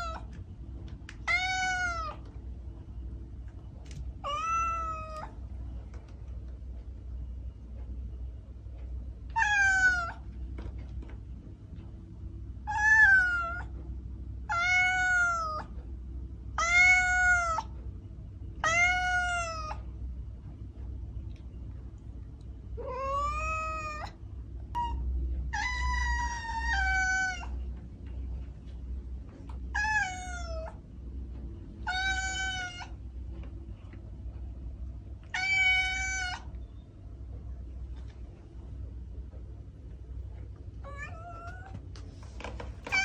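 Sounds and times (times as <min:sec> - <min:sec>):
cat meowing: 0:00.0 - 0:00.3, 0:01.2 - 0:02.3, 0:04.2 - 0:05.4, 0:09.3 - 0:10.2, 0:12.7 - 0:13.7, 0:14.5 - 0:15.7, 0:16.6 - 0:17.7, 0:18.6 - 0:19.8, 0:22.8 - 0:24.2, 0:24.8 - 0:27.6, 0:29.7 - 0:30.8, 0:31.8 - 0:33.0, 0:35.3 - 0:36.5, 0:40.8 - 0:41.8
low steady hum: 0:00.0 - 0:43.0.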